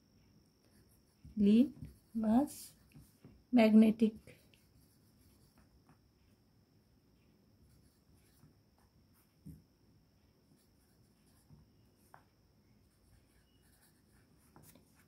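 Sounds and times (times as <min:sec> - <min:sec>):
pencil scratching on paper: 0:04.1 - 0:05.7, 0:12.9 - 0:15.0.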